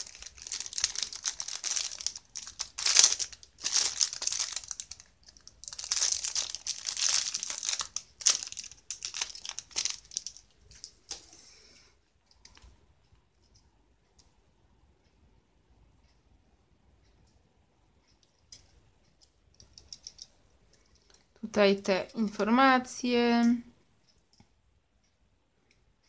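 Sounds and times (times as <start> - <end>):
wrapping crinkling and tearing: 0.0 - 11.2.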